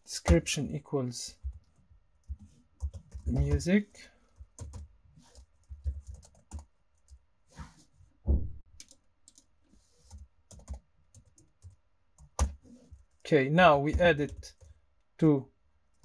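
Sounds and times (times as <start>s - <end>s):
keyboard typing: 1.4s - 3.7s, 4.3s - 7.2s, 8.8s - 13.0s
heavier thump: 8.3s - 8.6s.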